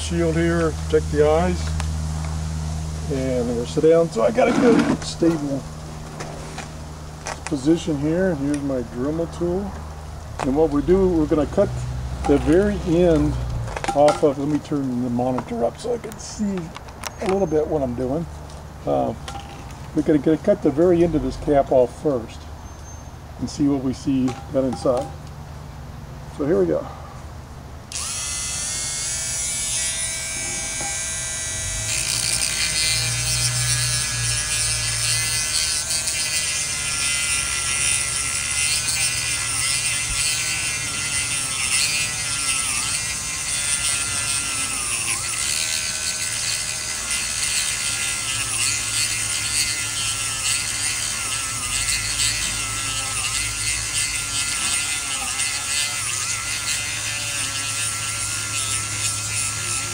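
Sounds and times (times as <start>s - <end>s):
rotary tool whining while cutting: 3.4s - 9.7s, 27.9s - 59.9s.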